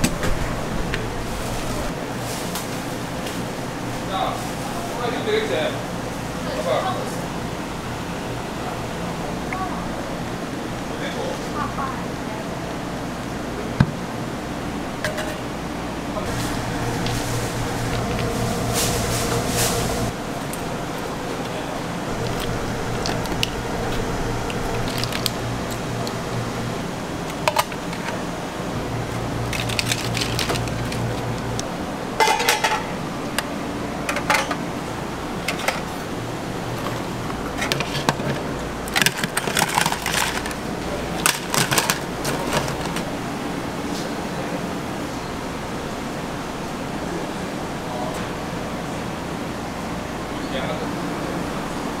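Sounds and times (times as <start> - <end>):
steady low hum: 0.0 - 2.1, 5.7 - 43.9.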